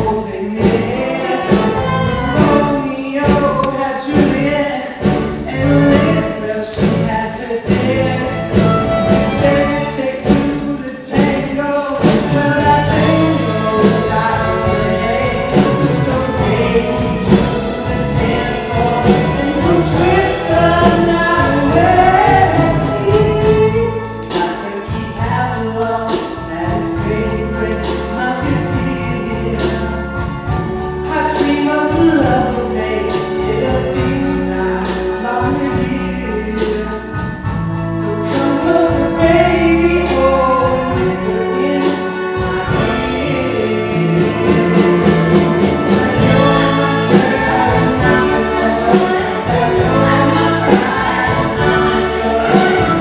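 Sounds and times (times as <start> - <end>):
group of voices singing: 0.0 - 30.2, 38.2 - 53.0
repeating bass line: 12.0 - 24.3, 42.4 - 53.0.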